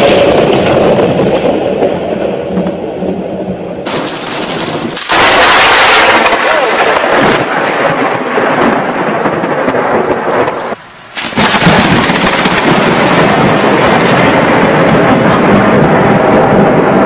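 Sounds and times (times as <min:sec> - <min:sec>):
rain: 0:00.0 - 0:17.0
thunder rumbling: 0:00.0 - 0:17.0.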